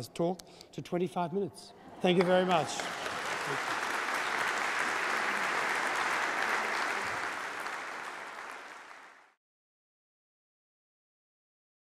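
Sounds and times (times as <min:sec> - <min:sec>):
audience applauding: 0:02.0 - 0:09.4.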